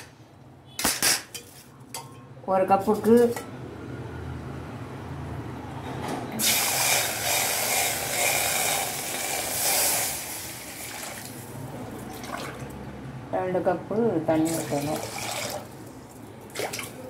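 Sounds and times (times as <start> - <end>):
water pouring into steel vessel: 6.4 - 11.4, 14.5 - 15.8.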